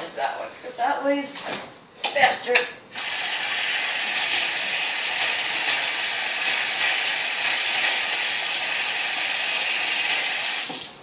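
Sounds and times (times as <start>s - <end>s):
water running from a tap: 3.0s - 11.0s.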